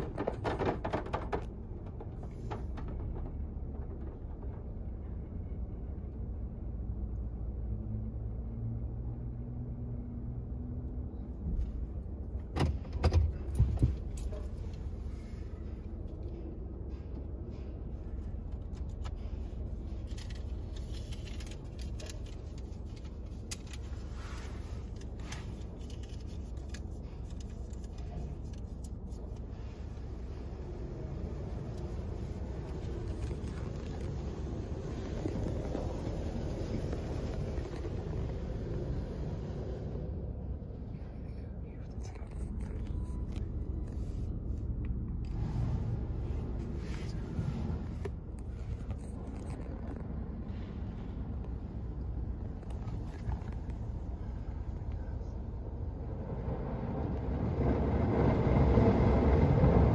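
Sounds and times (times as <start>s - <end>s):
faint low hum: 13.3s - 57.4s
low rumble: 13.4s - 59.9s
car wash water spray and brushes: 19.1s - 40.2s, 45.3s - 49.2s.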